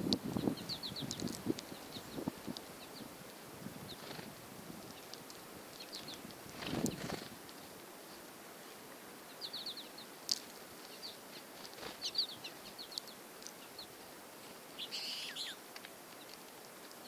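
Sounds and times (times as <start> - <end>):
small songbirds chirping: 0.0 - 17.0
faint clicks: 12.9 - 13.7.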